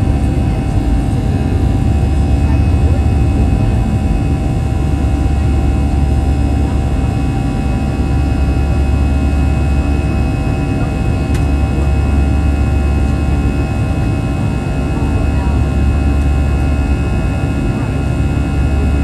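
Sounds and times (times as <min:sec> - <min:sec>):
whining engine tones: 0:00.0 - 0:09.1
jet engines rumbling: 0:00.0 - 0:19.0.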